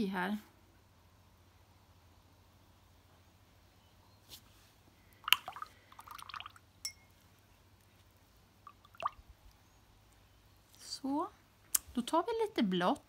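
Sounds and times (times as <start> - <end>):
water splashing: 5.2 - 6.6, 8.6 - 9.3
brush clinking against glass: 6.8 - 7.2.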